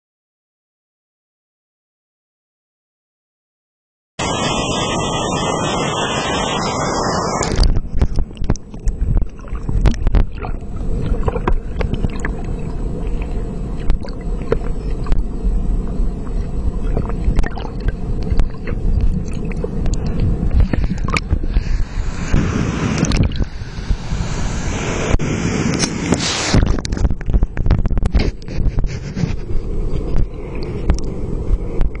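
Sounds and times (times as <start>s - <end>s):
waterfall roaring: 4.2s - 7.7s
underwater rumble of falling water: 4.2s - 32.0s
sharp underwater clicks and knocks: 7.4s - 15.3s, 16.2s - 21.6s, 23.0s - 23.5s, 25.8s - 32.0s.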